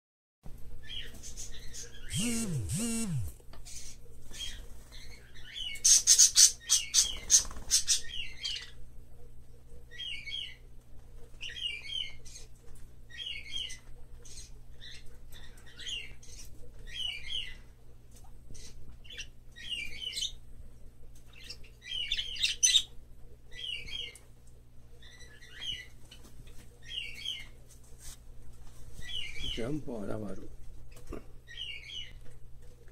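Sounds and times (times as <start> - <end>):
parrot chirping: 2.0 - 3.3.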